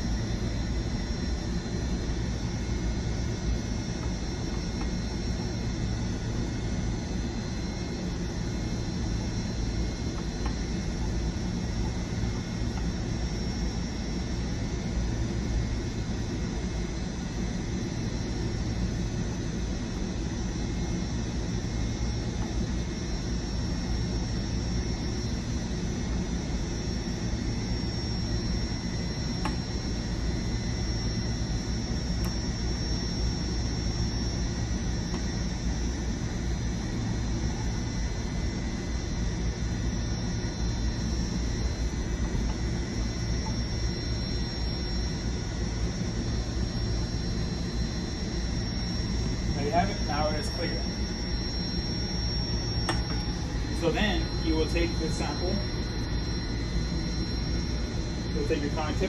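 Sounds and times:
machinery hum with high whine: 0:00.0 - 0:59.0.

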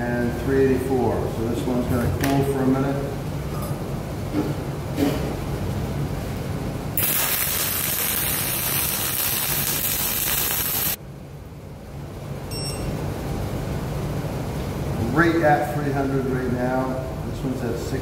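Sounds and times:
welding arc hissing: 0:07.0 - 0:11.0.

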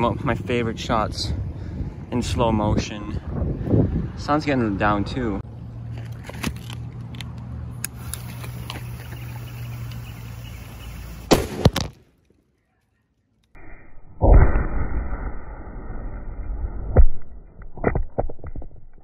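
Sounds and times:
outdoor background noise: 0:00.0 - 0:19.0
firecracker bang: 0:11.2 - 0:11.9.

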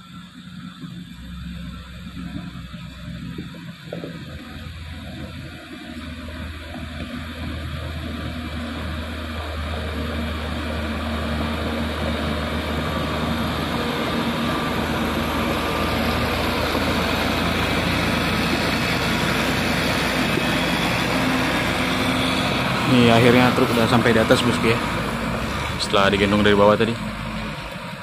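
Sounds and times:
diesel engines under load: 0:00.0 - 0:28.0.

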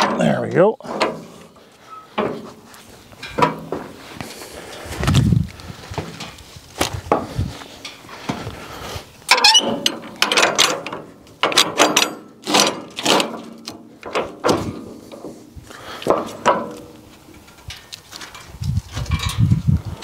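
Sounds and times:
wooden knocks and scrapes: 0:00.8 - 0:04.3, 0:05.0 - 0:08.6.

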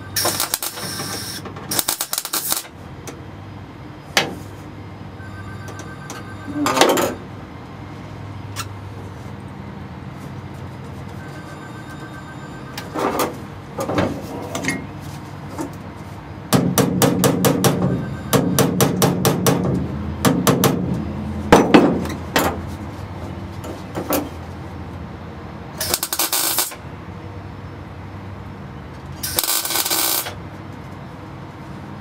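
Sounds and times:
welding burst: 0:00.2 - 0:02.7, 0:25.8 - 0:26.8, 0:29.2 - 0:30.4.

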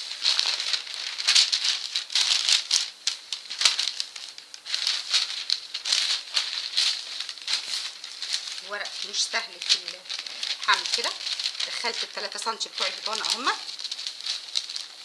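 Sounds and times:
stiff paper rustling and crinkling: 0:00.0 - 0:15.0.

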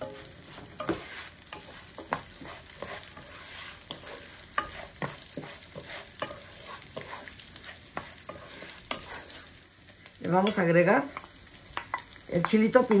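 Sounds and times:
utensil scraping a pan: 0:00.0 - 0:09.6
rice sizzling in a pan: 0:00.0 - 0:13.0.

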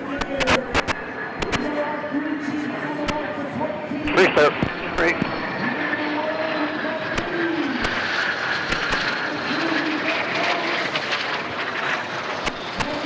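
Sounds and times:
jet engines overhead: 0:00.0 - 0:13.0.

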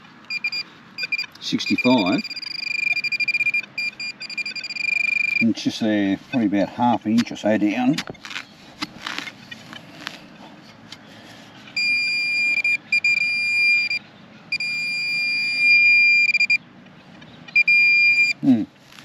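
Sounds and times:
metal detector high-pitched tone: 0:00.3 - 0:05.5, 0:11.8 - 0:16.6, 0:17.6 - 0:18.4
digging scrapes and knocks: 0:06.3 - 0:11.6.

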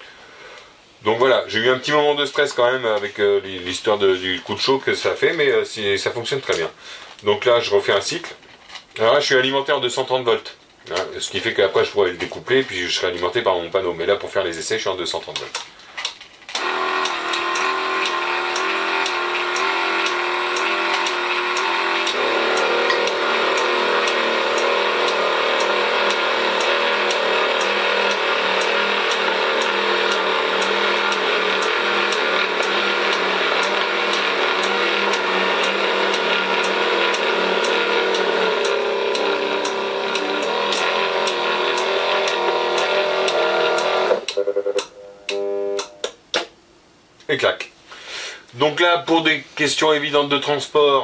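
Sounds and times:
electric motor whine: 0:16.6 - 0:46.1
regular ticking: 0:16.6 - 0:46.3.

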